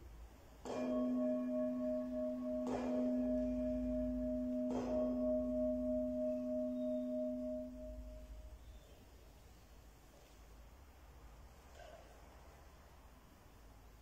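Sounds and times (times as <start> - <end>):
deep bell ringing: 0.6 - 8.6.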